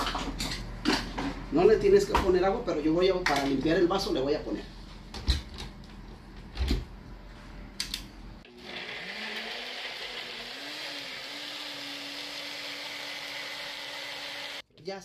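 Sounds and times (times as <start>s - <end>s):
blender motor whining: 8.4s - 14.6s.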